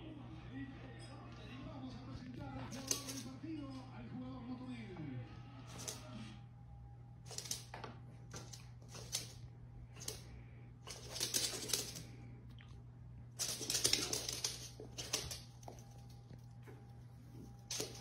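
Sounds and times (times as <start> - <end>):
dog claws scratching: 2.7 - 3.3, 7.3 - 9.4, 10.9 - 12.1, 13.4 - 18.0.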